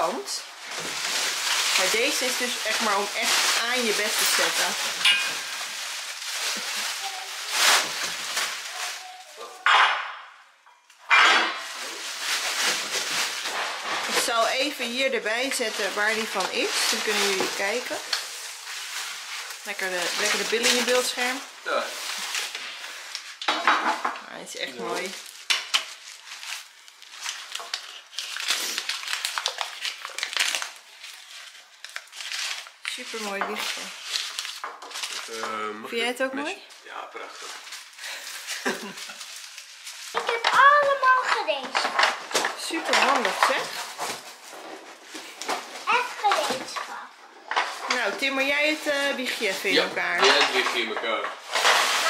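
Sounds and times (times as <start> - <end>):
bubble wrap crinkling: 0.0 - 23.7, 24.5 - 52.0
metal frame clinking: 5.0 - 5.5.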